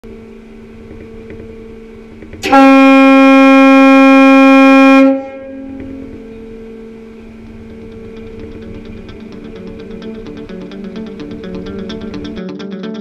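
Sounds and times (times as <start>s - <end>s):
steady low hum: 0.0s - 12.4s
ferry horn blast: 2.4s - 5.8s.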